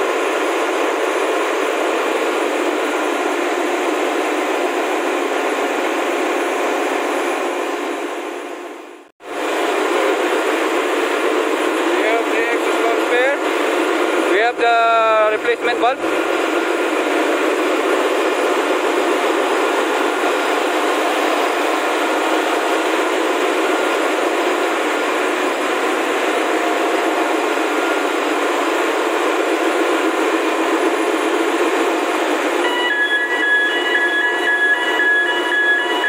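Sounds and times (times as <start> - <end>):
engine room machinery noise: 0.0 - 36.0
high multi-tone whine: 9.3 - 36.0.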